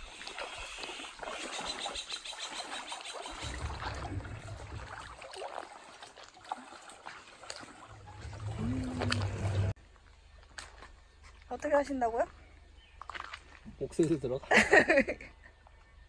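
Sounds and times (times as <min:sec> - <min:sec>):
feet splashing through stream: 0:00.0 - 0:11.4, 0:12.8 - 0:13.9
water trickling over stones: 0:00.0 - 0:14.5.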